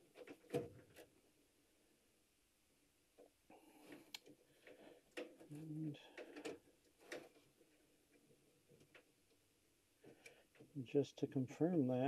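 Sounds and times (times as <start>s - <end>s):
wiring clicks and rustling: 0.0s - 1.2s, 3.2s - 9.4s.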